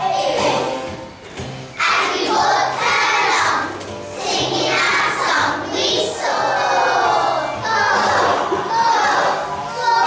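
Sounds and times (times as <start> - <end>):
children singing: 0.0 - 0.9, 1.8 - 10.0
musical accompaniment: 0.0 - 10.0.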